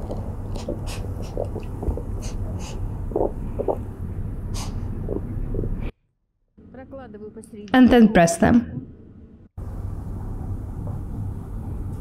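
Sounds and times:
steady low rumble: 0.0 - 5.9.

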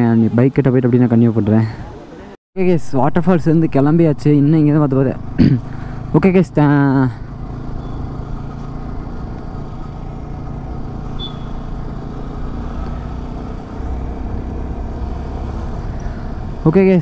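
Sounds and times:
road noise: 0.0 - 17.0
motorcycle engine running: 3.8 - 17.0
short high chirp: 11.2 - 11.6.

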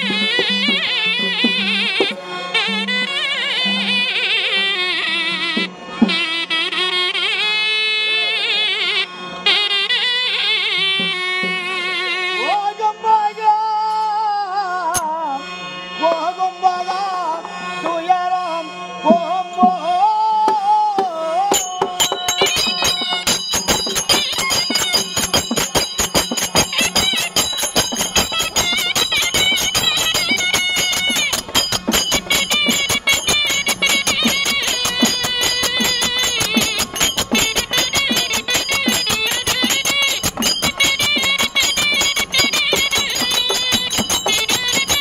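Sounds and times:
drum strokes: 0.0 - 4.0, 5.4 - 6.5, 19.1 - 45.0
hand cymbals: 0.0 - 7.4, 19.0 - 45.0
double-reed pipe melody: 0.0 - 45.0
man singing: 12.0 - 22.5.

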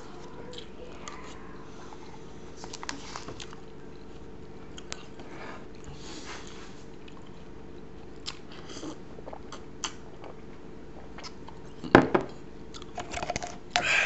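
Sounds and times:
person gulping and swallowing: 8.2 - 13.0.

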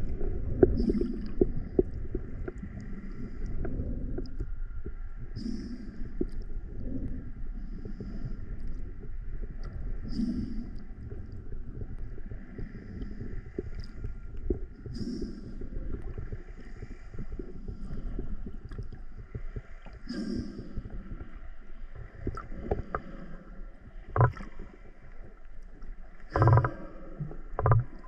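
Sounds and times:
water gurgle: 0.0 - 4.8, 8.9 - 28.0
underwater rumble of water: 0.0 - 28.0
small underwater knocks: 24.0 - 24.6, 26.3 - 28.0.

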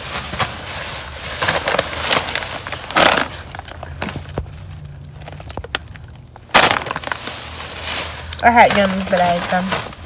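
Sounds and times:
chip bag crinkling: 0.0 - 10.0.

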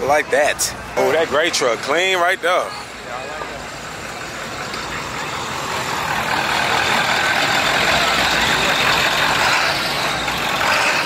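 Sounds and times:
pickup truck engine driving past: 3.4 - 11.0.

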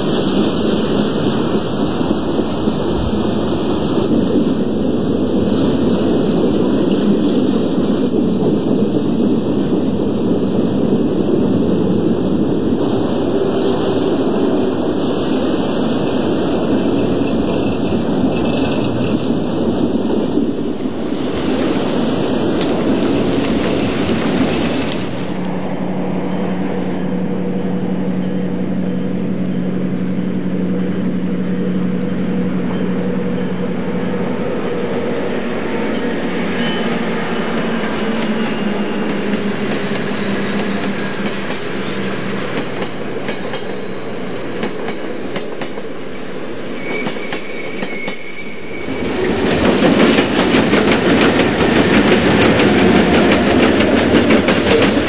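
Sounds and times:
wheels clicking over rails: 11.4 - 25.6, 49.0 - 55.0.

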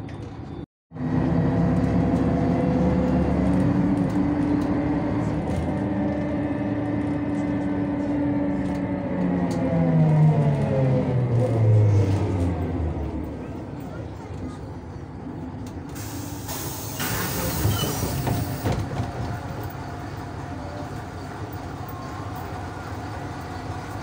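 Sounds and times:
bus diesel engine drone: 0.0 - 24.0.

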